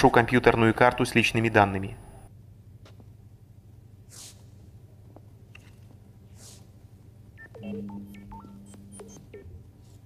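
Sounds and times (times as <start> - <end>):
steady hum: 0.0 - 10.0
short electronic beeps: 7.4 - 9.5.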